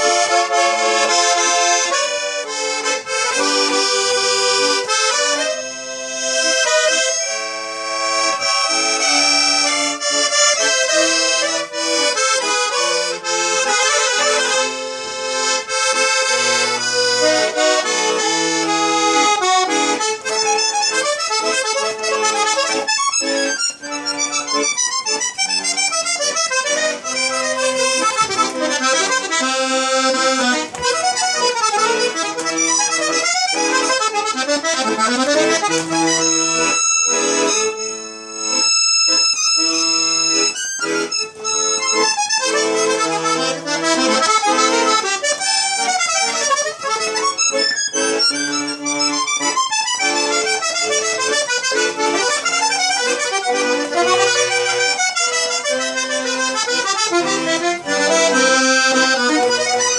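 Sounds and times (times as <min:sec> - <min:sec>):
accordion playing: 0:00.0 - 0:59.9.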